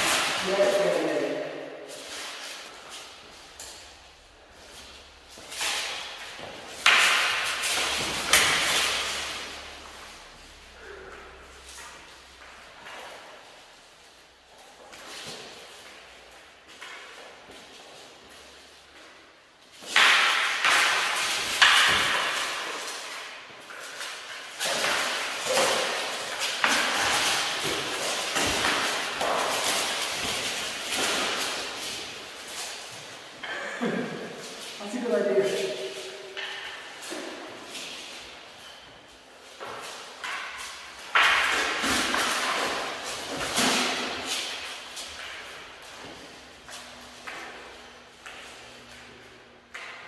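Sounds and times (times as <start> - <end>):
rattle of mail and armour: 19.8 - 33.4.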